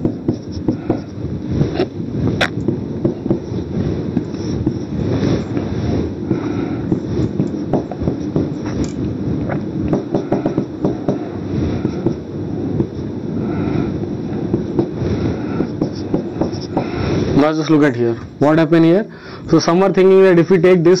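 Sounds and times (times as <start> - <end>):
marker squeaking on whiteboard: 0.0 - 5.6, 15.4 - 17.0
low rumbling noise: 0.0 - 21.0.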